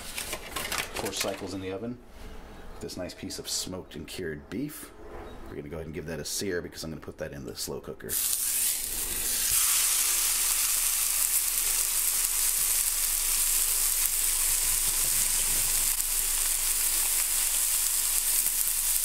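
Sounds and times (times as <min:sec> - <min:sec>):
meat sizzling in a skillet: 0:08.1 - 0:19.0.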